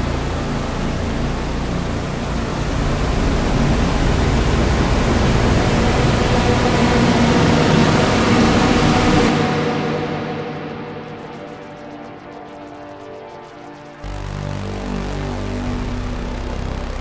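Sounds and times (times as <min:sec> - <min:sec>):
electronic noise hiss: 0:11.0 - 0:17.0.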